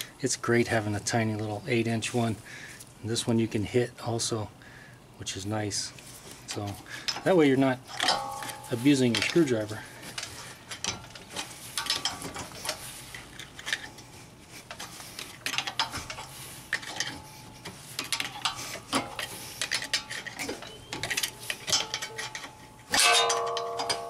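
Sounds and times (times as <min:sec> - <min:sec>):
pry bar clicking and scraping metal: 0:06.5 - 0:24.0.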